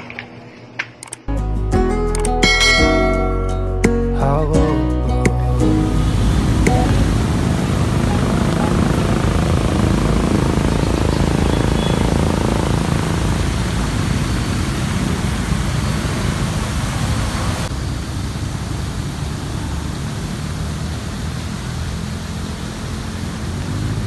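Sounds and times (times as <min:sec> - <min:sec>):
fountain water jets splashing: 0:05.8 - 0:24.0.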